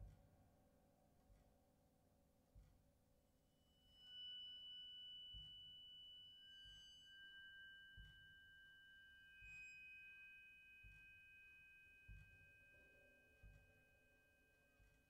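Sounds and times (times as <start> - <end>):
ringing metal percussion tones: 3.5 - 15.0.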